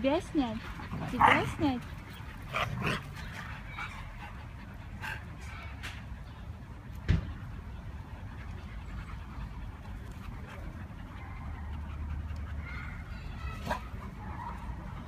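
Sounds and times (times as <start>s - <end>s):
dogs panting: 0.0s - 15.0s.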